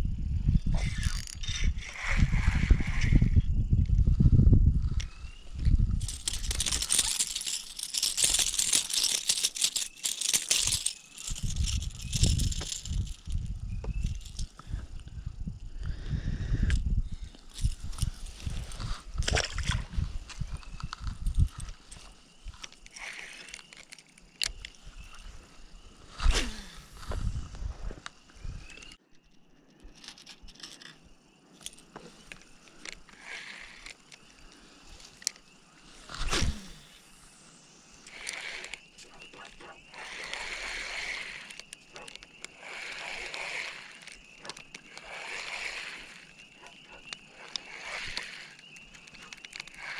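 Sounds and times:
fishing reel clicking: 0:00.8 - 0:03.4, 0:06.0 - 0:13.4, 0:32.8 - 0:35.4, 0:38.0 - 0:49.9
handling rustling in dry grass: 0:05.9 - 0:14.6.

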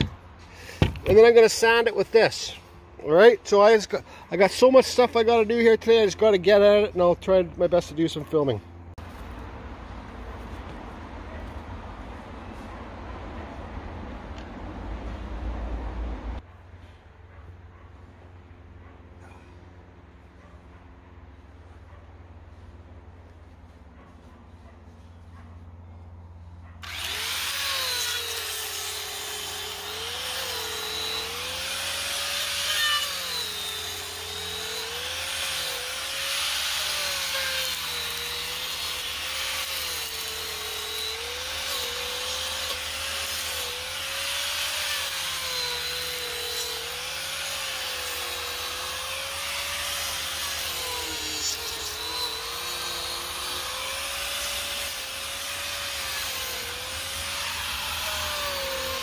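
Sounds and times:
angle grinder motor whine: 0:26.8 - 0:59.0
cutter grinding into wood: 0:26.8 - 0:59.0.

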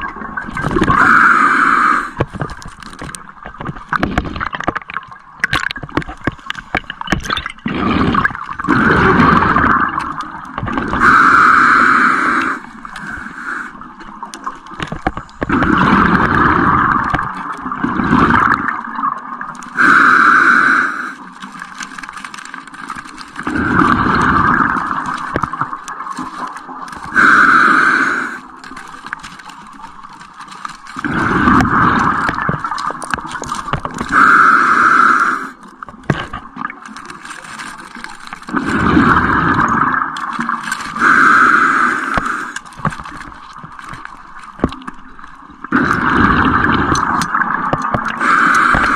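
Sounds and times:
bubbling exhale: 0:00.0 - 0:03.1, 0:06.2 - 0:14.0, 0:15.1 - 0:18.9, 0:19.6 - 0:22.4, 0:23.1 - 0:29.2, 0:31.0 - 0:35.9, 0:38.3 - 0:42.9, 0:44.6 - 0:48.9
diver breathing through regulator: 0:00.8 - 0:02.4, 0:10.7 - 0:13.8, 0:19.7 - 0:21.3, 0:26.2 - 0:28.7, 0:34.0 - 0:35.7, 0:40.6 - 0:42.8, 0:48.1 - 0:48.9
clicks and scrapes: 0:02.1 - 0:11.2, 0:12.5 - 0:19.9, 0:21.2 - 0:27.4, 0:28.4 - 0:34.3, 0:35.6 - 0:41.4, 0:42.1 - 0:48.9.

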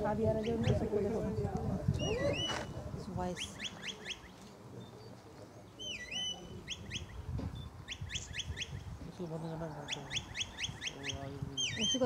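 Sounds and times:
shepherd's whistle commands: 0:02.0 - 0:02.7, 0:05.8 - 0:07.2.

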